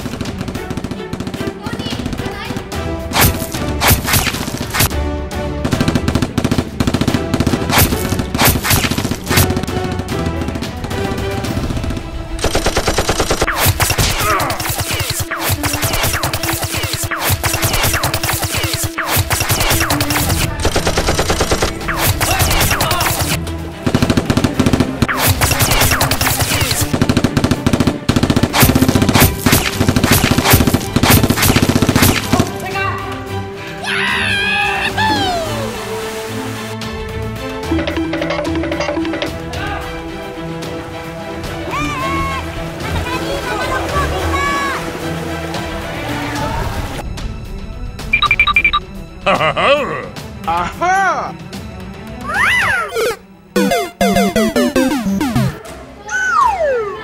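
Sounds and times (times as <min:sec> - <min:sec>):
machine-gun fire: 0:00.0 - 0:02.3, 0:05.6 - 0:32.6, 0:53.0 - 0:55.6
rapid automatic gunfire: 0:00.0 - 0:02.4, 0:05.6 - 0:32.5
background music: 0:00.0 - 0:57.0
single gunshots: 0:03.1 - 0:04.9, 0:28.0 - 0:32.6.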